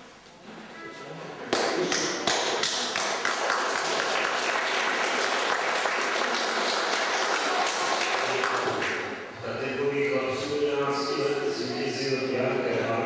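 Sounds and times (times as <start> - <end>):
audience applauding: 1.5 - 9.2.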